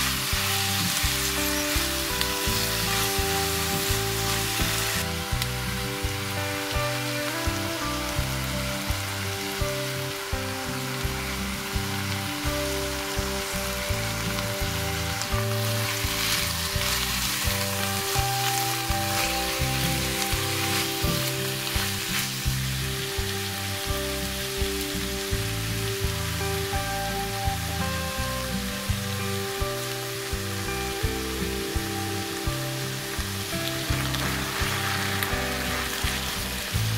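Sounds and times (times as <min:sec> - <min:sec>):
background music: 0:00.0 - 0:36.9
food sizzling in a frying pan: 0:00.0 - 0:36.9
wooden spatula stirring pan: 0:13.2 - 0:23.0.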